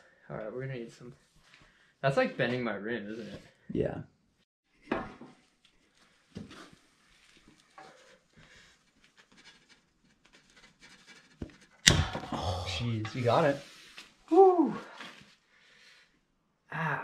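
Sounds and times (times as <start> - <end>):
man grunting and breathing: 11.9 - 12.9.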